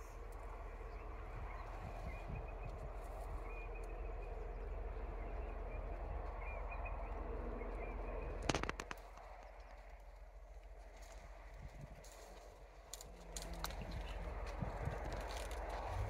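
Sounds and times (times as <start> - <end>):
steady low hum: 0.0 - 16.0
sharp clicks: 8.4 - 9.7.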